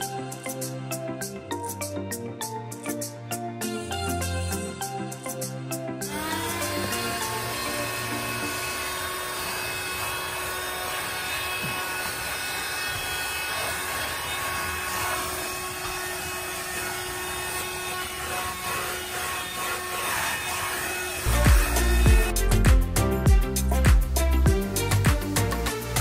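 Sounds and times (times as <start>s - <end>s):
handheld vacuum cleaner running: 6.0s - 22.4s.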